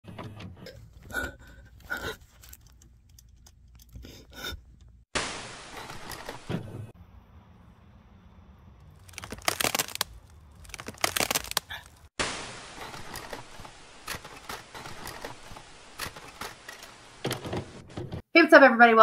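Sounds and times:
loud crackling and clattering: 9.0 - 17.9
tv static hiss: 12.2 - 17.8.

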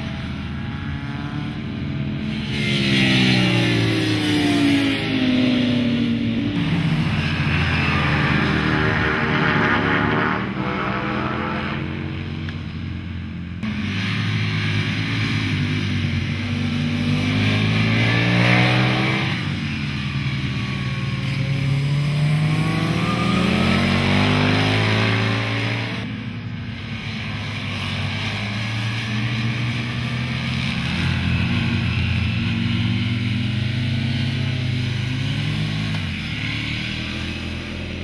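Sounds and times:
motorcycle engine revving: 0.0 - 38.0.

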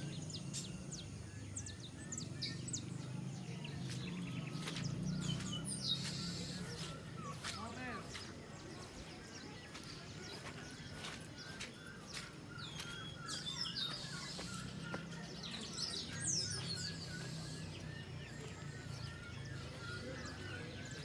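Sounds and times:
birds chirping and calling: 0.0 - 21.0
outdoor background noise: 0.0 - 21.0.

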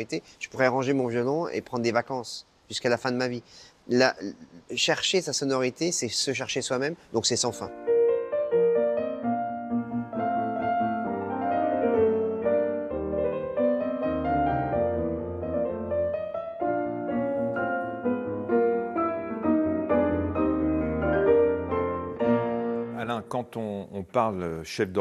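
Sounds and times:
piano playing: 7.2 - 24.0.

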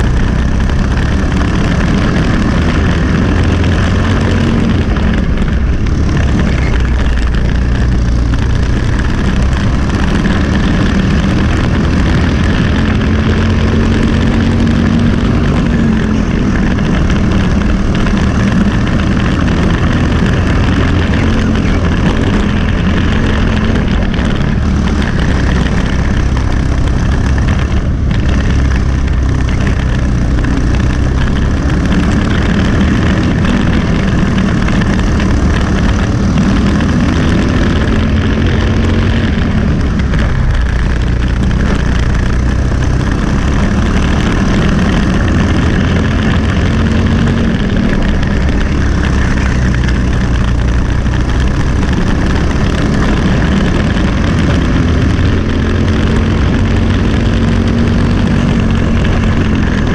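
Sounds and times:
kart engine running at full throttle: 0.0 - 59.9.

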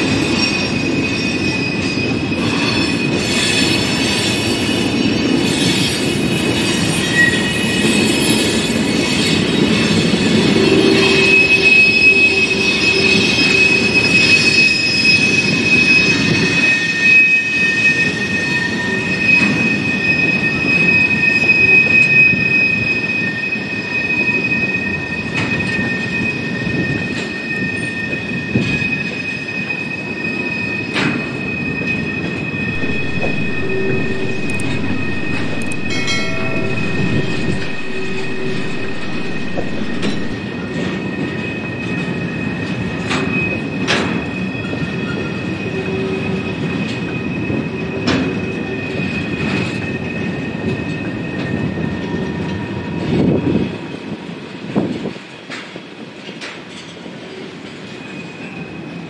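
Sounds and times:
train wheels rumbling on rails: 0.0 - 59.0
high-pitched wheel squeal: 0.2 - 40.6.

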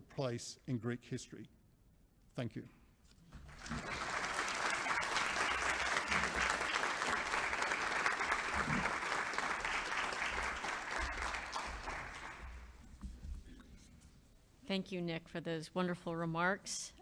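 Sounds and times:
audience applause: 3.4 - 12.7.

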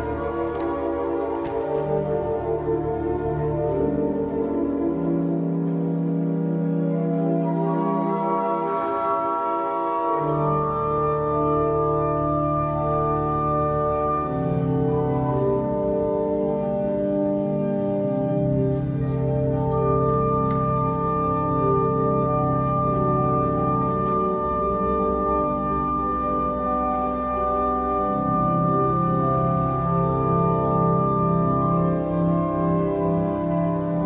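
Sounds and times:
pipe organ chords: 0.0 - 34.0
deep organ bass notes: 2.0 - 27.0.

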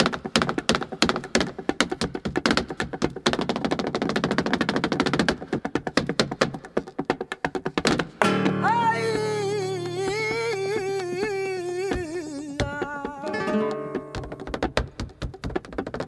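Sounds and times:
flamenco footwork tapping: 0.0 - 16.0
person singing flamenco: 5.9 - 16.0
guitar: 8.1 - 15.2.

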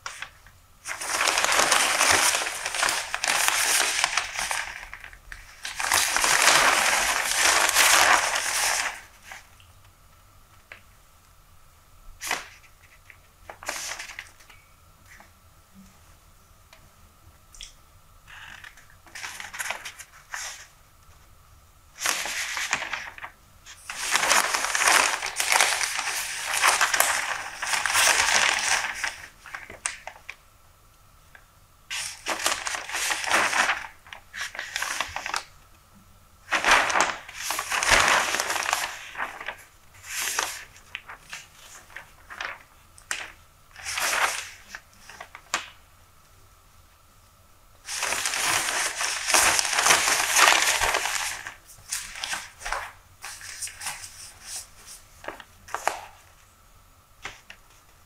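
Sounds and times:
newspaper pages rustling: 0.0 - 9.5, 12.2 - 14.5, 18.3 - 20.8, 21.9 - 30.4, 31.9 - 35.6, 36.4 - 45.8, 47.8 - 56.4.

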